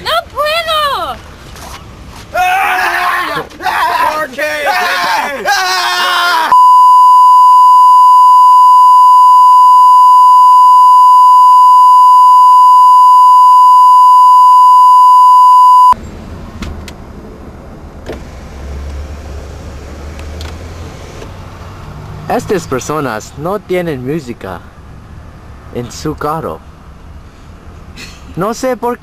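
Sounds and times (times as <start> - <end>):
electronic beep tone: 6.5 - 16.0.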